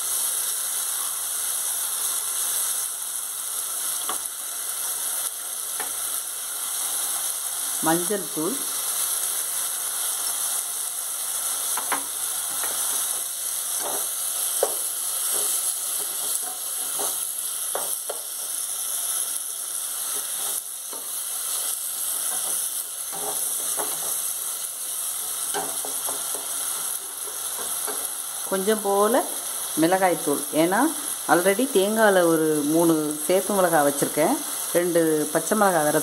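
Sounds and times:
vegetables sizzling in oil: 0:00.0 - 0:36.0
spatula scraping and knocking pot: 0:13.8 - 0:18.3.

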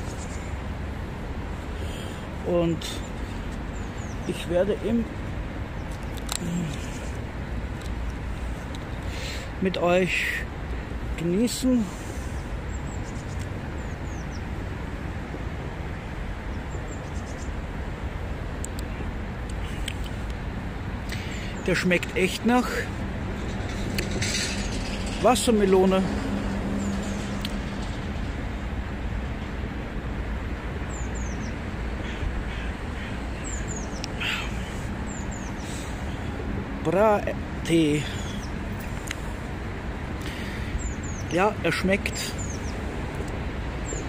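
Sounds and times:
low outdoor rumble: 0:00.0 - 0:44.0
bird chirps: 0:30.9 - 0:36.4, 0:40.3 - 0:42.8
scratchy bird call: 0:32.0 - 0:36.4.

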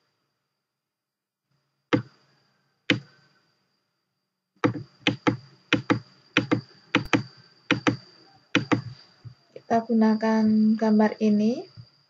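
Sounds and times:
computer mouse clicking: 0:02.9 - 0:03.1, 0:04.6 - 0:09.0
faint high-pitched tone: 0:05.5 - 0:12.0.

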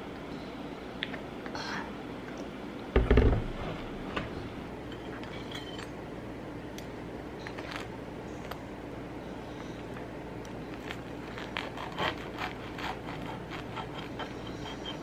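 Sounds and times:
steady low hum: 0:00.0 - 0:15.0
heavy thump: 0:03.0 - 0:04.3
cutlery scraping on plate: 0:05.0 - 0:06.0.

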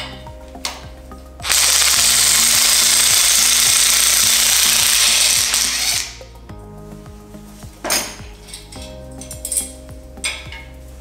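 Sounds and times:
rotary tool grinding metal: 0:01.4 - 0:06.2.

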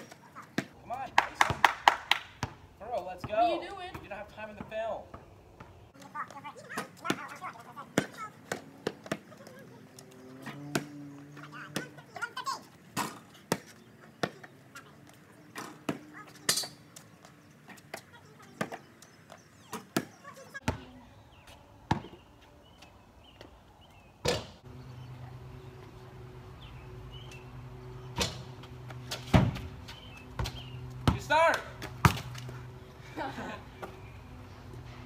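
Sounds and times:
basketball bouncing on concrete: 0:00.0 - 0:09.6, 0:10.4 - 0:12.3, 0:13.0 - 0:20.9, 0:21.9 - 0:22.2, 0:28.2 - 0:32.6
ball striking rim and backboard: 0:02.4 - 0:05.8, 0:21.9 - 0:22.2, 0:24.2 - 0:24.6, 0:28.1 - 0:32.5
steady low hum: 0:20.8 - 0:35.0.

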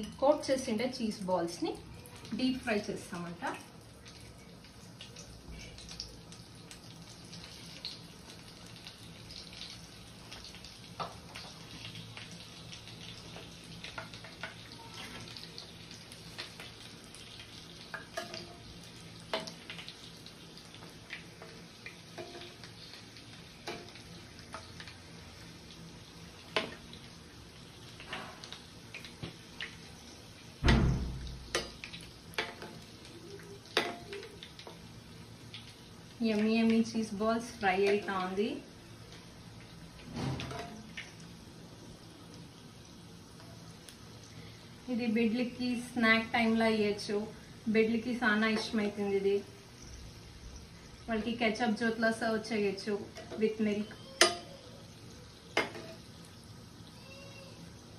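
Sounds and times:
oil sizzling and crackling: 0:00.0 - 0:57.9
metal spoon clinking against pan: 0:54.2 - 0:54.5.

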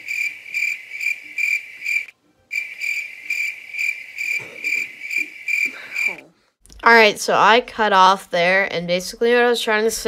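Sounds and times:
cricket chirping: 0:00.0 - 0:06.2.

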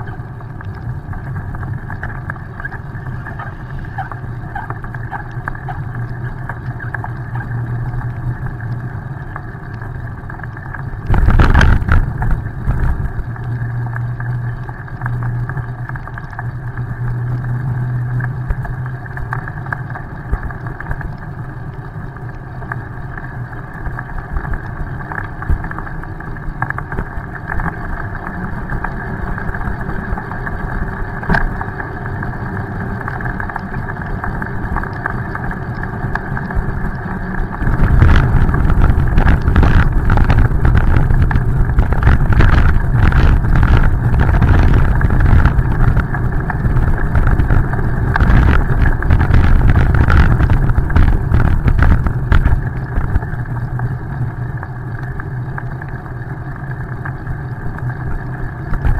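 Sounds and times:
wind noise: 0:11.0 - 0:13.4, 0:35.8 - 0:53.6, 0:58.2 - 0:58.9
road rumble: 0:30.5 - 0:53.9.

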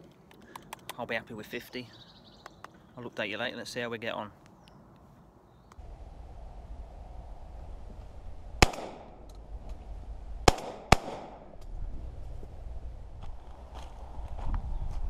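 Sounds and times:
shotgun shots: 0:08.6 - 0:09.2, 0:10.4 - 0:11.5.

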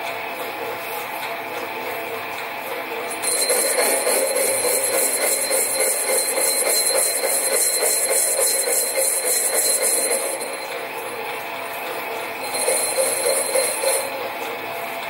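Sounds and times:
lathe running with high whine: 0:00.0 - 0:15.0.

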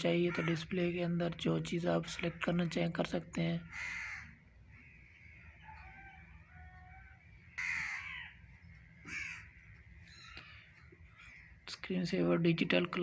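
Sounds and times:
crows cawing: 0:00.2 - 0:00.7, 0:03.7 - 0:11.6.

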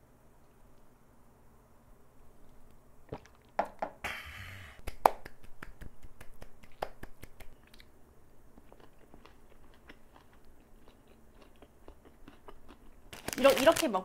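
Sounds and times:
wet mouth clicks: 0:04.8 - 0:07.9
close-up chewing: 0:08.5 - 0:13.2.

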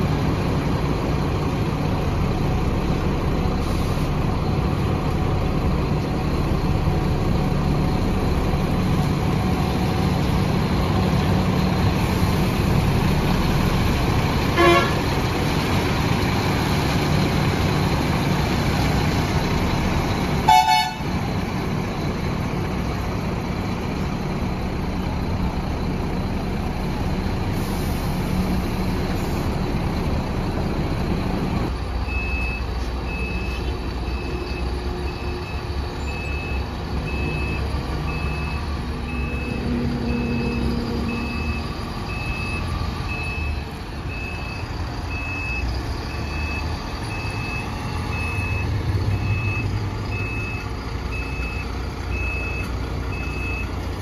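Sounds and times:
diesel engine idling: 0:00.0 - 0:54.0
vehicle horn toots: 0:14.6 - 0:15.0, 0:20.4 - 0:21.1.

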